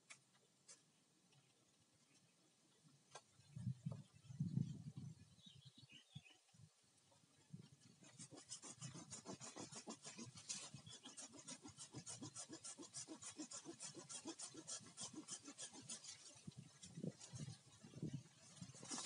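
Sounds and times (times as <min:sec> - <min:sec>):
hand saw cutting bamboo: 0:08.0 - 0:17.8.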